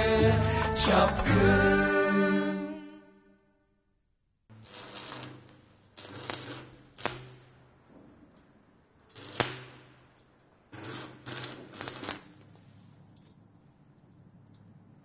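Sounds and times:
arc welding crackling: 0:04.5 - 0:14.5.

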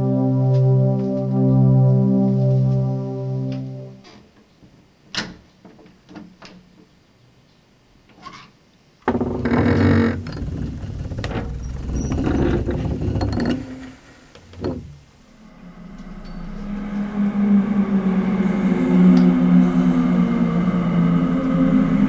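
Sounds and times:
eerie low droning tone: 0:00.0 - 0:04.0, 0:09.1 - 0:22.0.

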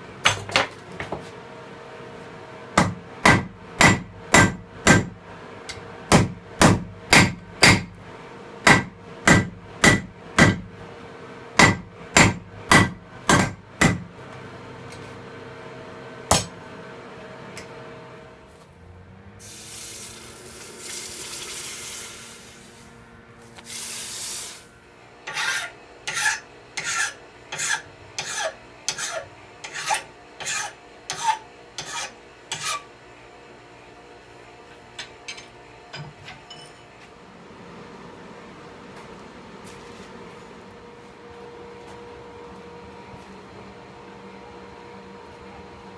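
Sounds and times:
hammer beating steel on anvil: 0:02.8 - 0:05.2, 0:06.1 - 0:07.9, 0:08.6 - 0:10.7, 0:11.6 - 0:14.1, 0:16.3 - 0:16.6
hot steel quenched hissing: 0:23.6 - 0:24.7
file strokes on metal: 0:25.3 - 0:32.9.

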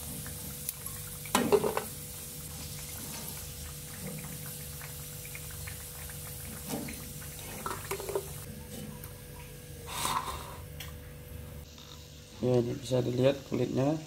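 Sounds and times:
hot oil crackling in a frying pan: 0:00.0 - 0:08.5.

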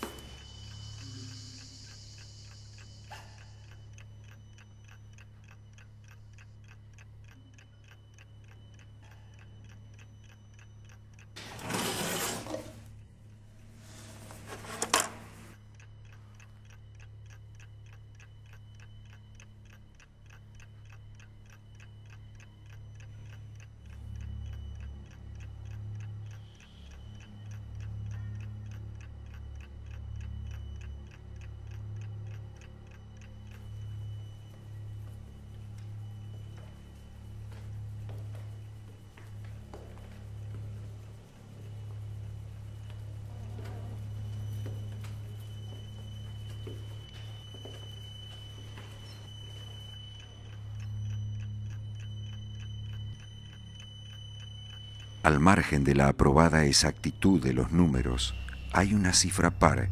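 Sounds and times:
clock ticking: 0:00.0 - 0:59.9
low hum: 0:00.0 - 0:59.9.

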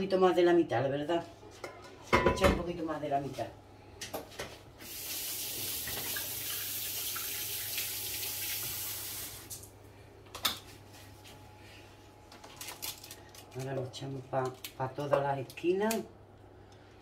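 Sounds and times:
kitchen tap running: 0:04.8 - 0:09.7.

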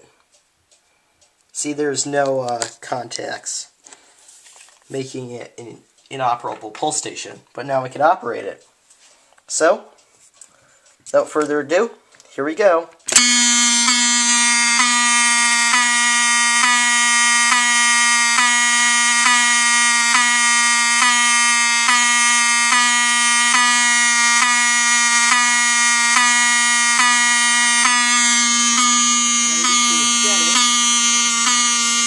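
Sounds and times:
fire alarm horn buzzing: 0:13.1 - 0:32.0.

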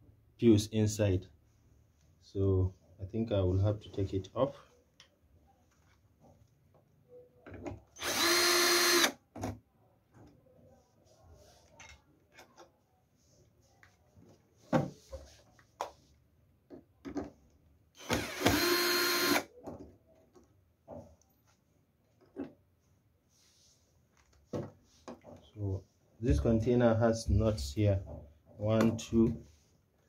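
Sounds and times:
cordless drill whining: 0:08.0 - 0:09.2, 0:18.0 - 0:19.5.

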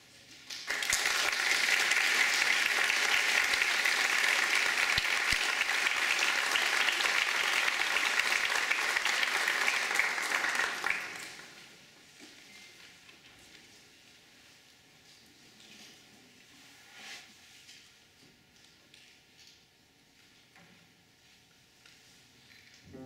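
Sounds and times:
audience applauding: 0:00.5 - 0:11.6.

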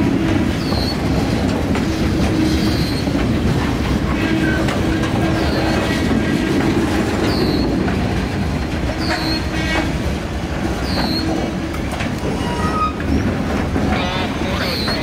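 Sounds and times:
freight cars rumbling on rails: 0:00.0 - 0:15.0
high wheel squeals: 0:07.3 - 0:07.7, 0:09.0 - 0:09.8, 0:10.8 - 0:11.4, 0:12.3 - 0:13.2, 0:14.0 - 0:15.0.

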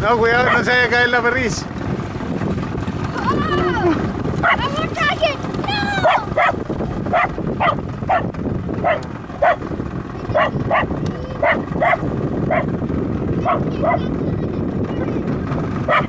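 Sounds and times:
water noise: 0:00.0 - 0:16.0
wind: 0:00.0 - 0:16.0
dog barking: 0:00.4 - 0:00.7, 0:04.4 - 0:04.8, 0:06.0 - 0:09.7, 0:10.3 - 0:12.7, 0:13.4 - 0:14.1.

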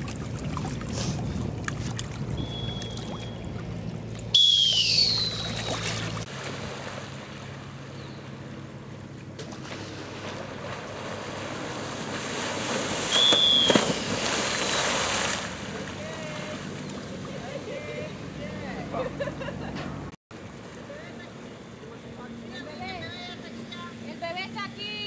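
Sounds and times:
water rushing and splashing: 0:00.0 - 0:18.7
short falling whistles: 0:02.4 - 0:03.4, 0:04.3 - 0:06.0, 0:13.1 - 0:15.0
loud splash: 0:04.4 - 0:07.4, 0:09.4 - 0:16.7.

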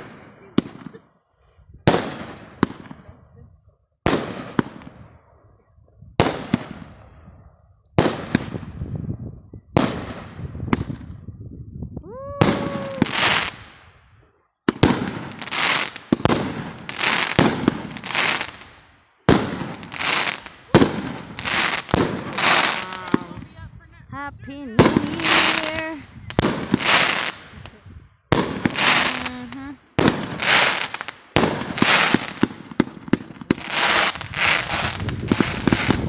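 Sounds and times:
fireworks bursting with bangs: 0:00.0 - 0:01.2, 0:01.8 - 0:03.2, 0:04.0 - 0:05.1, 0:06.2 - 0:07.4, 0:08.0 - 0:08.9, 0:09.8 - 0:11.2, 0:12.4 - 0:14.0, 0:14.6 - 0:23.6, 0:24.7 - 0:36.0
fireworks crackling: 0:12.4 - 0:13.9, 0:14.7 - 0:24.0, 0:24.6 - 0:36.0.

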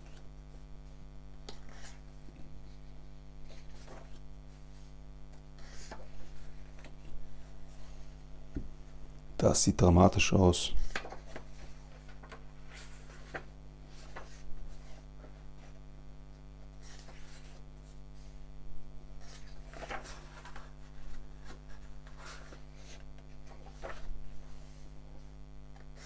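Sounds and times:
low electrical hum: 0:00.0 - 0:26.0
comic pages turning: 0:03.4 - 0:04.9, 0:10.7 - 0:15.8, 0:19.2 - 0:24.9.

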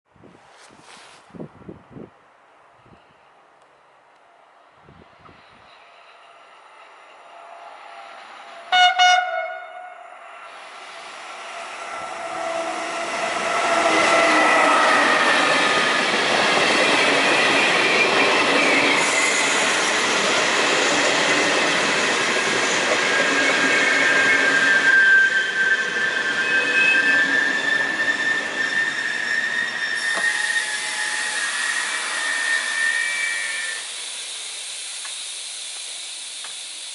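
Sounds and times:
train rolling past: 0:04.2 - 0:36.9
wheels squealing: 0:22.6 - 0:33.9.

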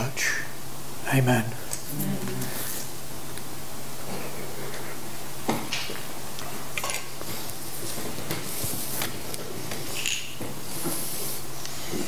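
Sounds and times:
rustling and shuffling: 0:01.6 - 0:12.0
small cups clinking: 0:09.9 - 0:10.4.

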